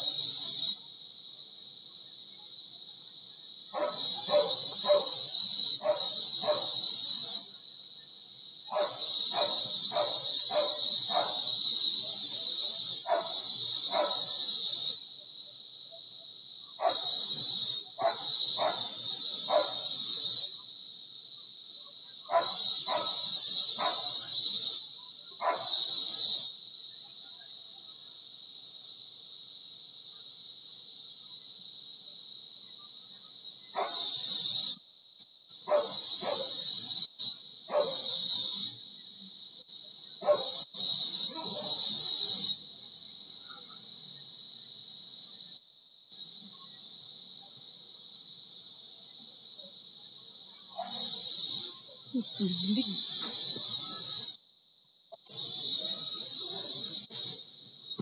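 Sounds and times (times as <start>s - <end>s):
cicadas buzzing: 0.0s - 58.0s
dog barking: 3.7s - 5.2s, 5.8s - 6.8s, 8.7s - 11.5s, 13.0s - 14.4s, 16.8s - 17.2s, 18.0s - 18.9s, 19.5s - 19.8s, 22.3s - 24.2s, 25.4s - 25.8s, 33.8s - 34.1s, 35.7s - 36.6s, 37.7s - 38.2s, 40.2s - 40.6s, 41.3s - 41.8s, 50.7s - 51.1s.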